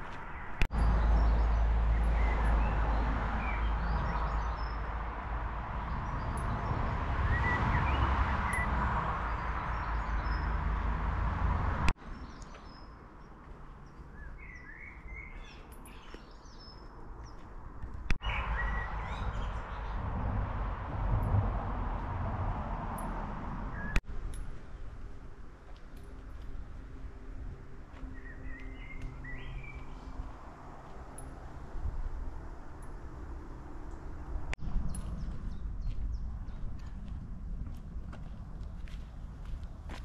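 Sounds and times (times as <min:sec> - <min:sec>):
wind rumble on microphone: 0:00.0 - 0:12.9, 0:16.6 - 0:40.0
small birds chirping: 0:12.0 - 0:17.5.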